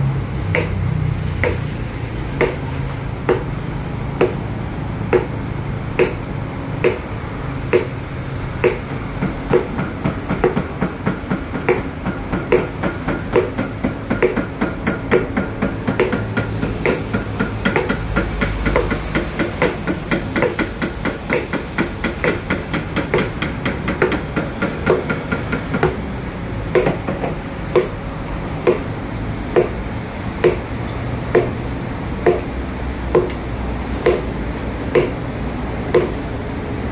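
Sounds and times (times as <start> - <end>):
mallet tapping a chisel: 0.4 - 1.7, 2.4 - 3.6, 4.2 - 4.4, 5.1 - 5.4, 6.0 - 7.1, 7.7 - 8.0, 8.6 - 26.1, 26.7 - 28.0, 28.6 - 28.9, 29.5 - 29.8, 30.4 - 30.7, 31.3 - 31.6, 32.2 - 32.5, 33.1 - 34.3, 34.9 - 35.2, 35.9 - 36.2.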